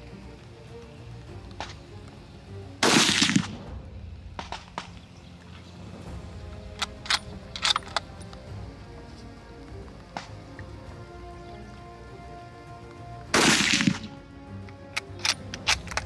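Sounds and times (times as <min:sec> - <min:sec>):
rifle shot: 0:02.8 - 0:05.0, 0:13.3 - 0:14.1
rifle bolt metallic clicks: 0:06.5 - 0:08.5, 0:13.6 - 0:16.0.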